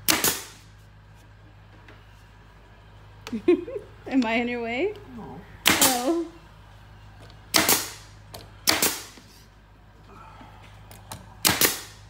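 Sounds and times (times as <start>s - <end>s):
air-powered nailer firing: 0.0s - 0.7s, 5.6s - 6.2s, 7.5s - 9.3s, 11.3s - 12.0s.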